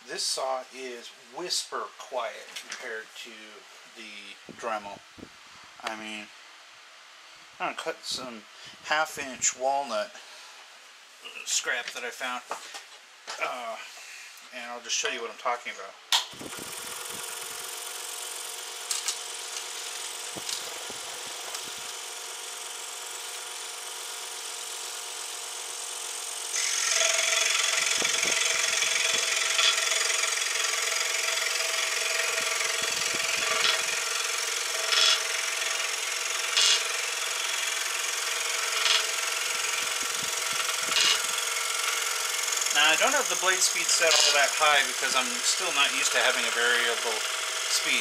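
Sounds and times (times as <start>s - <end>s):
scroll saw humming: 16.3s - 48.0s
workpiece chattering buzzes: 16.3s - 48.0s
saw blade rasping through wood: 26.5s - 48.0s.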